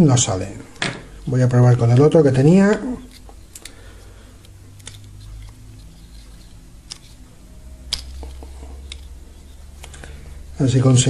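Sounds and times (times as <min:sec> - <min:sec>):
low steady hum: 0:00.0 - 0:11.0
pliers clicking and scraping plastic: 0:03.0 - 0:03.8, 0:04.4 - 0:07.2, 0:07.9 - 0:10.0.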